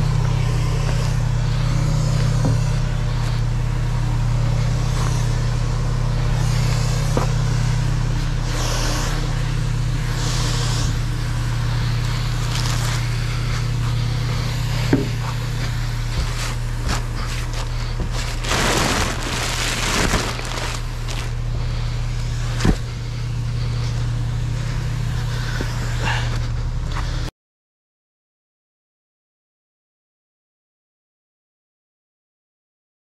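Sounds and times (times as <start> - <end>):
diesel engine idling: 0.0 - 27.3
rustling: 11.9 - 14.0, 15.2 - 24.1.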